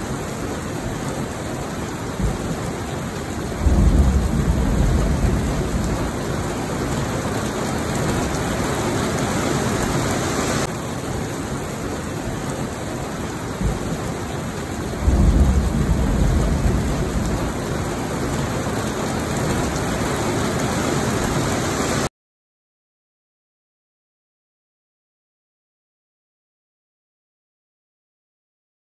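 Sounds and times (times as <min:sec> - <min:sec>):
heavy rain pouring: 0:00.0 - 0:22.1
thunder rumble: 0:02.2 - 0:08.7, 0:14.6 - 0:18.6.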